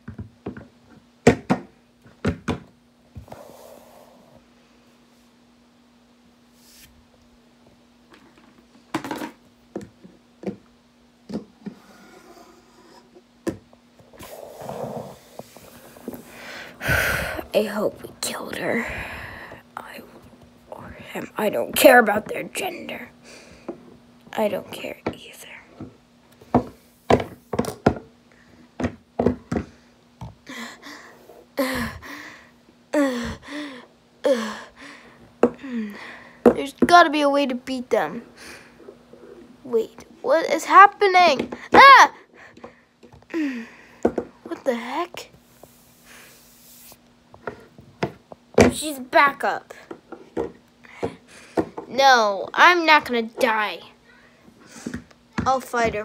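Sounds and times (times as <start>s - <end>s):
faint steady hum: 0.0s - 56.0s
person making growling noises: 14.2s - 15.8s.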